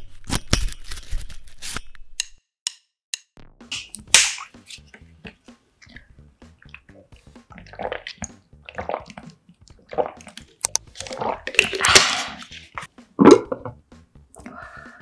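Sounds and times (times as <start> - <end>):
person gulping water: 5.8 - 12.5, 13.2 - 13.8
plastic bottle crinkling: 10.2 - 13.7.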